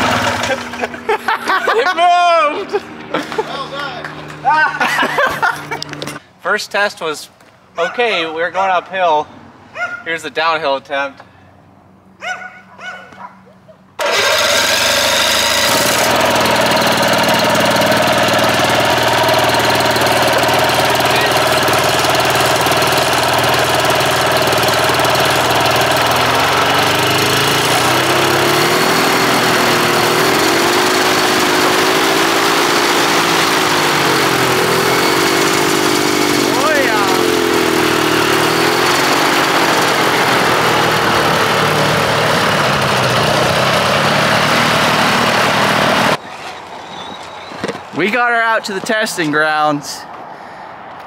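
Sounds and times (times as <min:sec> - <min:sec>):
two-stroke engine running: 0:00.0 - 0:01.9, 0:14.0 - 0:46.2.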